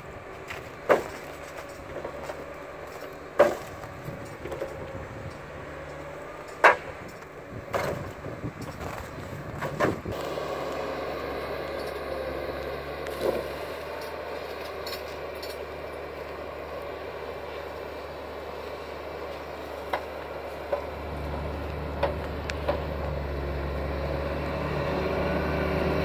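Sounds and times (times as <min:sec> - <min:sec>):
diesel engine running: 0:00.0 - 0:26.0
wooden knocks of logs dropped: 0:00.4 - 0:04.9, 0:06.6 - 0:08.2.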